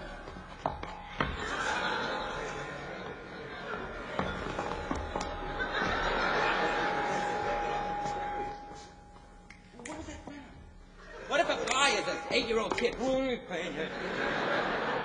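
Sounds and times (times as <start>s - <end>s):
audience laughing: 0.0s - 8.6s, 13.6s - 15.0s
thin steady tone: 6.1s - 9.8s.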